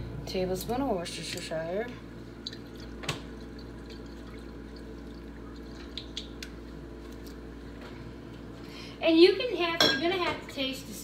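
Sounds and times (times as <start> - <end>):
liquid trickling and dripping: 2.3 - 7.4.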